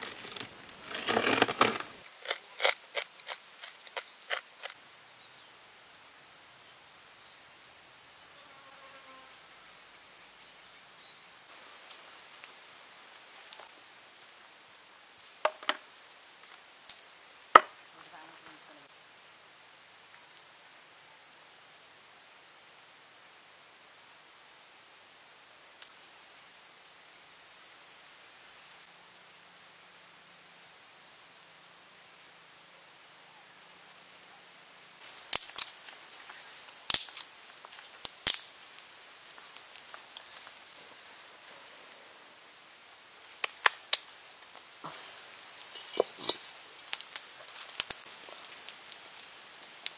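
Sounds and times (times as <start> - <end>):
wood fire cracking and popping: 0.0 - 4.8, 35.0 - 40.9, 43.2 - 49.9.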